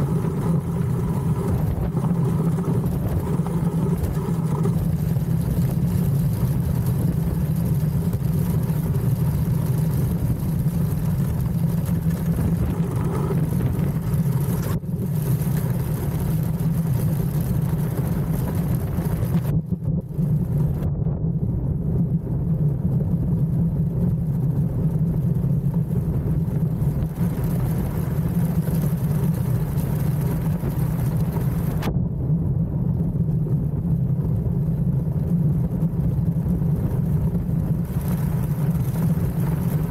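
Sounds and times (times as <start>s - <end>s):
iceboat runners rumbling on ice: 0.0s - 39.9s
noisy hiss: 24.8s - 31.9s.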